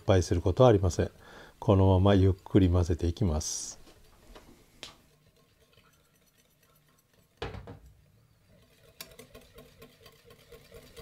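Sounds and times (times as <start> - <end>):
whisk wires ticking against bowl: 0.2 - 4.2, 4.8 - 11.0
whisk stirring in ceramic bowl: 5.0 - 7.5, 8.4 - 11.0
jug set down knock: 7.4 - 7.9.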